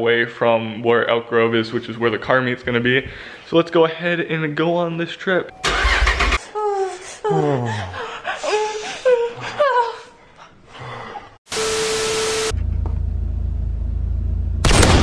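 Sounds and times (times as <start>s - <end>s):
low steady rumble: 12.6s - 15.0s.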